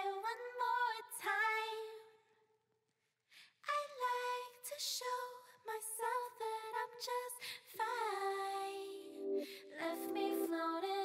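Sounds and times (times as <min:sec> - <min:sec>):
woman singing long held notes: 0:07.8 - 0:11.0.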